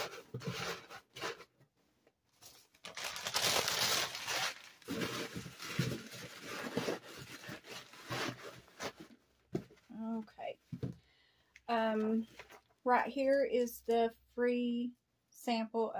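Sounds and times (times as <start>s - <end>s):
packing paper crumpling: 2.4s - 9.0s.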